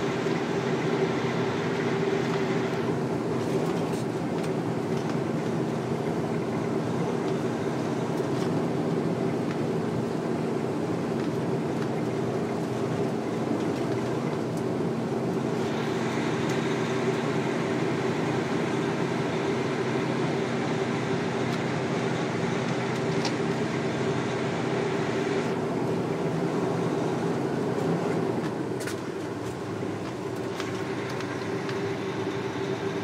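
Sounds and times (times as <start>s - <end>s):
road and wind noise: 0.0s - 33.0s
truck engine hum: 0.0s - 33.0s.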